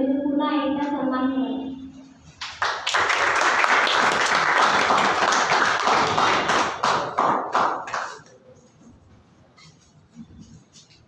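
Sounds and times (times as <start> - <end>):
audience applauding: 2.4 - 8.3.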